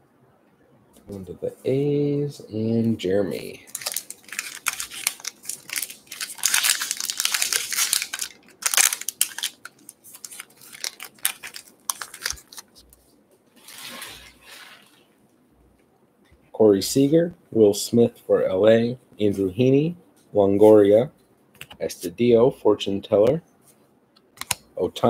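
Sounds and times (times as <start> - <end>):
card wrapper tearing and crinkling: 3.6 - 13.0.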